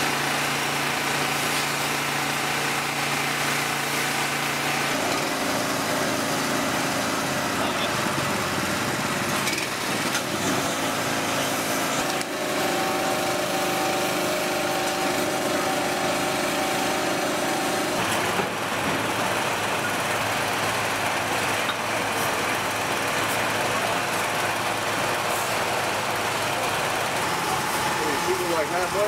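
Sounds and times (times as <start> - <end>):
pitched whine: 26.4 - 29.0.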